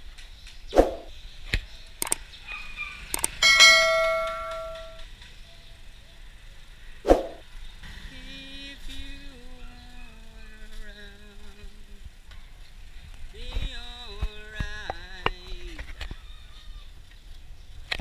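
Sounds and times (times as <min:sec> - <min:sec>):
sharp clicks: 0:00.4 - 0:02.2, 0:03.1 - 0:03.4
small bell ringing: 0:03.4 - 0:05.0.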